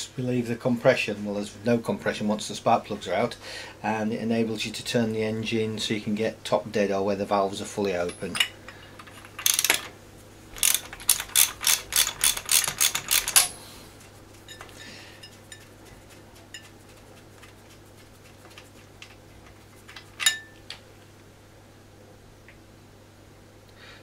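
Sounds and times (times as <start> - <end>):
small metallic clicks: 8.1 - 9.9, 10.6 - 13.5
hand ratchet clicking: 9.2 - 9.9, 10.6 - 13.5.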